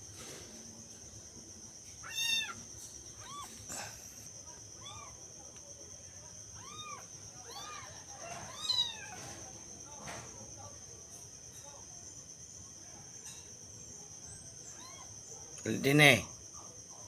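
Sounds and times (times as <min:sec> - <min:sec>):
kitten meowing: 0:02.0 - 0:02.6, 0:03.2 - 0:03.6, 0:06.6 - 0:09.2.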